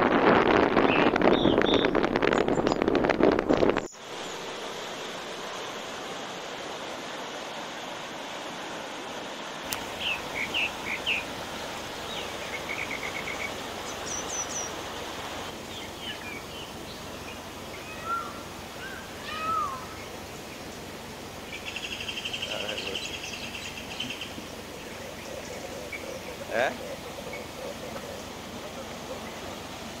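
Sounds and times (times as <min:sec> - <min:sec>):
stream rushing: 0:00.0 - 0:30.0
small birds chirping: 0:09.7 - 0:30.0.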